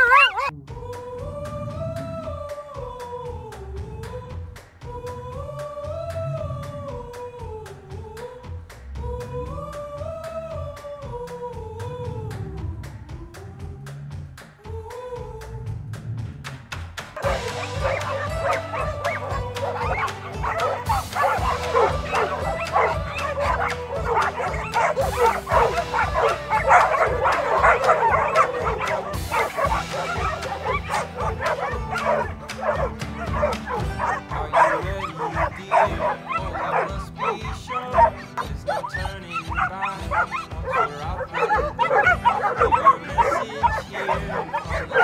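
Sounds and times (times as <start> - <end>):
dogs barking and yipping: 0.0 - 0.5, 17.2 - 45.0
background music: 0.0 - 45.0.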